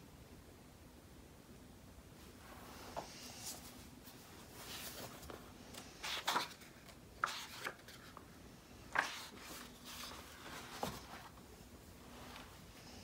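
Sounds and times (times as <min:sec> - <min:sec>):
book pages turning: 0:04.6 - 0:11.4.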